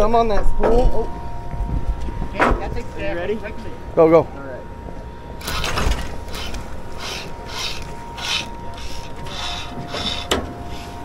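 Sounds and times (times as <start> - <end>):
fishing line rasping off reel: 5.4 - 11.0.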